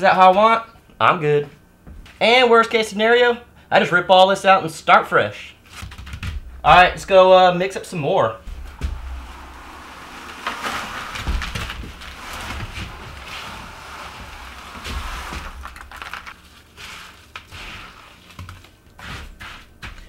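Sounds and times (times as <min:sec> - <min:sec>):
wet concrete scraping from bucket: 0:08.4 - 0:18.4
concrete clumps thudding: 0:08.4 - 0:19.4.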